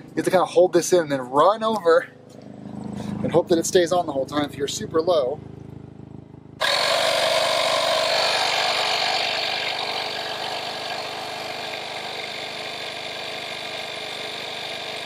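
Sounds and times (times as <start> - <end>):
air compressor running: 6.6 - 15.0.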